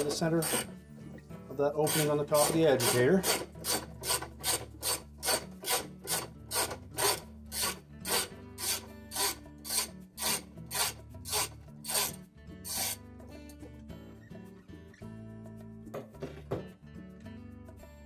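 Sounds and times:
ratchet wrench ratcheting: 0.0 - 0.7, 1.8 - 13.0.

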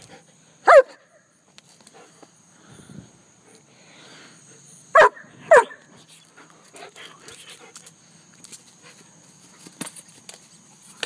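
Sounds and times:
crickets trilling: 0.0 - 11.0
dog barking: 0.6 - 1.0, 4.9 - 5.9.

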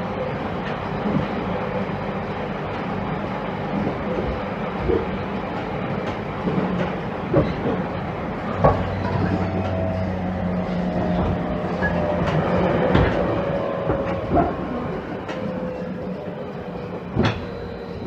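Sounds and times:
train motor drone: 0.0 - 18.0
wheels clacking over rail joints: 3.6 - 18.0.

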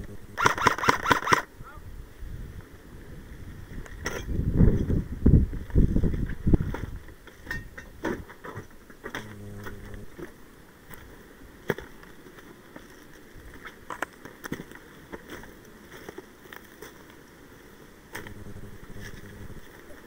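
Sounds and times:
movement rumble on microphone: 2.0 - 17.2, 18.2 - 20.0
footsteps through dry scrub: 9.6 - 20.0.

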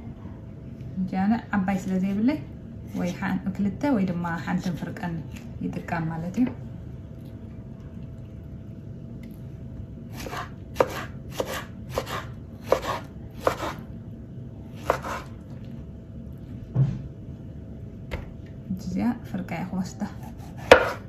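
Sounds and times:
knife slicing a tomato: 10.1 - 13.8, 14.8 - 15.3, 20.2 - 21.0.

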